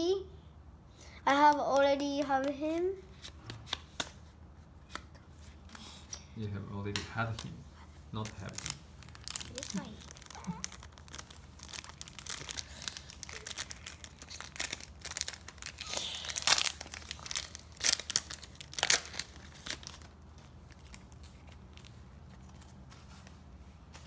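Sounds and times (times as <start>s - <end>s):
foil pack tearing: 8.2s - 20.1s
foil card pack crinkling: 8.2s - 22.8s.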